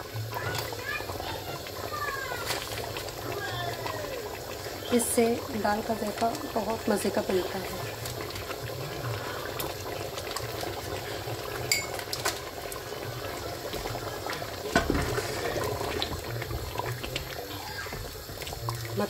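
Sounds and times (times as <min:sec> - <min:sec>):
dal bubbling in a pot: 0:00.0 - 0:19.0.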